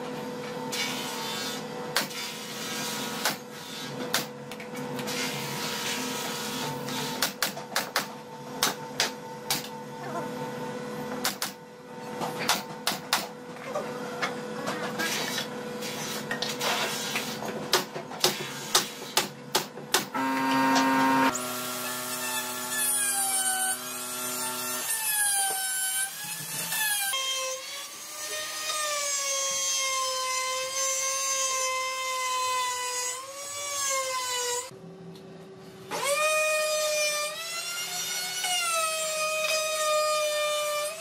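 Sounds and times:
electric router whining: 0:20.2 - 0:24.9.

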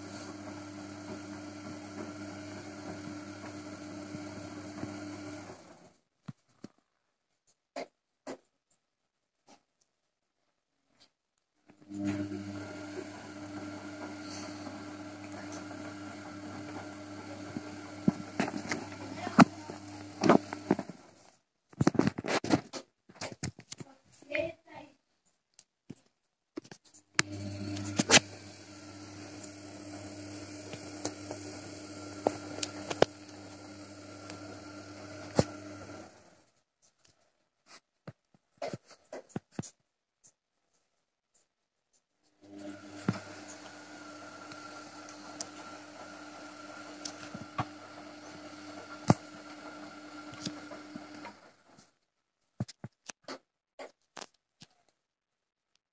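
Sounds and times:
washing machine motor humming: 0:00.0 - 0:06.0, 0:11.8 - 0:21.2, 0:27.2 - 0:36.5, 0:42.4 - 0:51.8.

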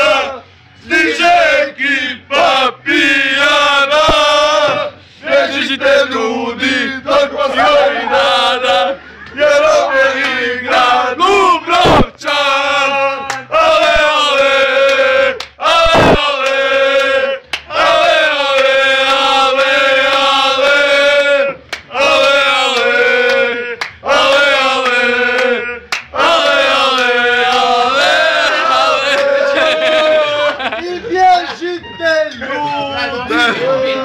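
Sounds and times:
men chanting together: 0:00.0 - 0:30.8.

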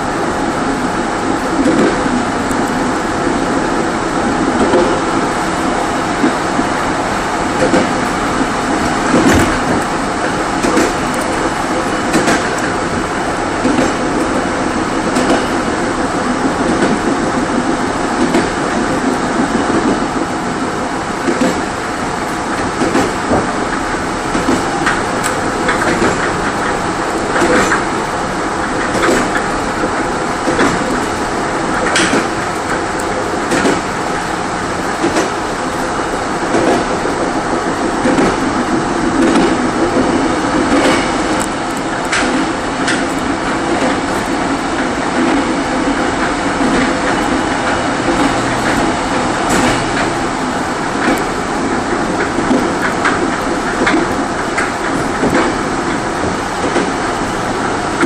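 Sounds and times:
train wheels rumbling on rail: 0:00.0 - 0:58.0
wheel clicks over rail joints: 0:07.6 - 0:15.8, 0:21.2 - 0:58.0.

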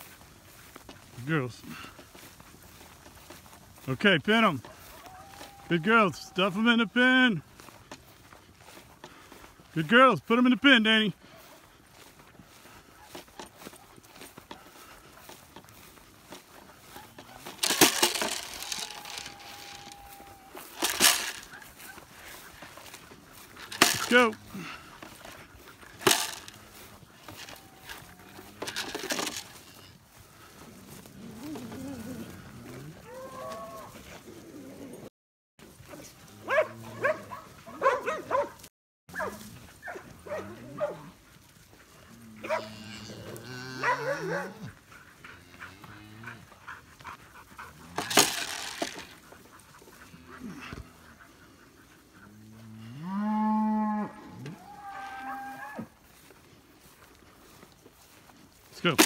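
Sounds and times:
dogs barking and whining: 0:04.6 - 0:06.3, 0:16.7 - 0:23.1, 0:30.8 - 0:35.1, 0:35.9 - 0:41.5, 0:42.3 - 0:52.4
cattle lowing: 0:11.2 - 0:35.1, 0:39.4 - 0:57.4.

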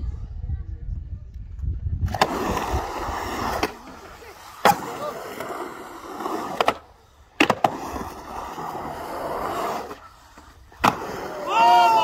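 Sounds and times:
skateboard wheels rumbling on concrete: 0:01.6 - 0:12.0
skateboard landing cracks: 0:07.4 - 0:07.9, 0:10.7 - 0:11.2.

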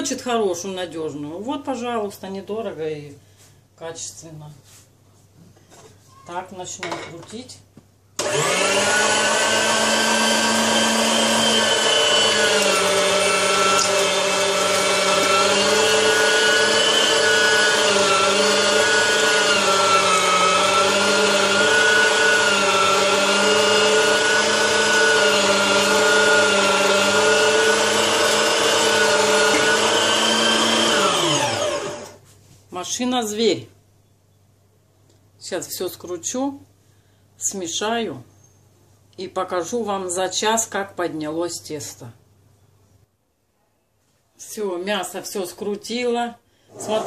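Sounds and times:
electric meat grinder motor whine: 0:08.2 - 0:32.2.

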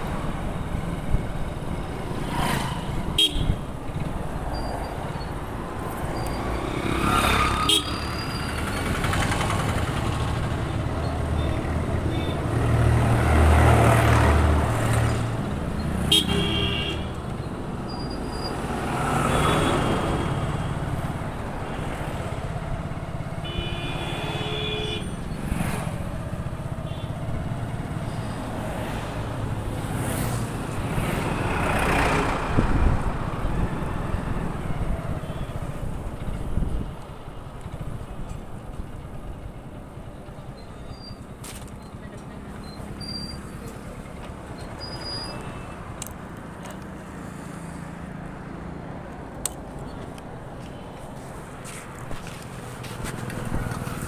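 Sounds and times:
passing vehicles: 0:00.0 - 0:54.0
road and wind noise: 0:00.0 - 0:54.0
vehicle horns honking: 0:03.2 - 0:03.6, 0:07.6 - 0:08.3, 0:16.0 - 0:17.2, 0:23.4 - 0:25.2.

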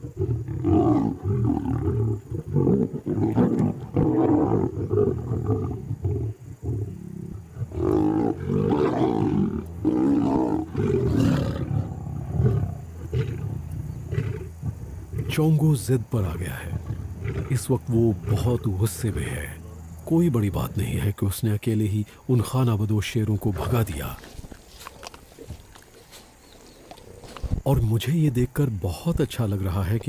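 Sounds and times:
lions snarling and growling: 0:00.0 - 0:21.2.

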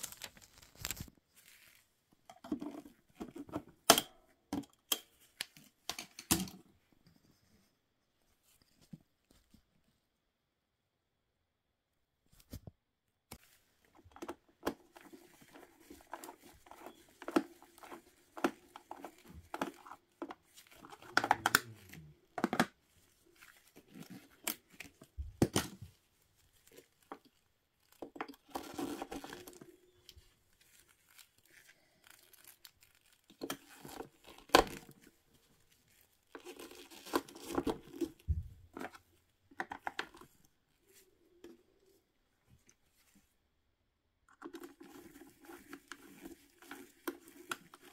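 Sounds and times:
plastic clicks and scrapes: 0:13.9 - 0:22.8.

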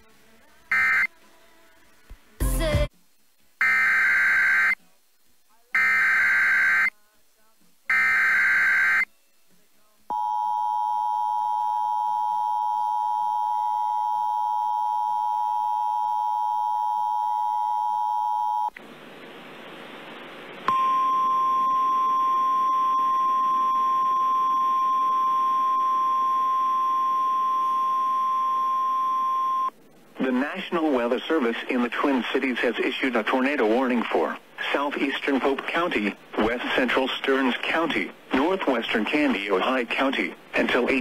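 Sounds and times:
radio hiss: 0:18.8 - 0:22.1, 0:29.5 - 0:41.0
steady warning alarm tone: 0:20.7 - 0:29.7.

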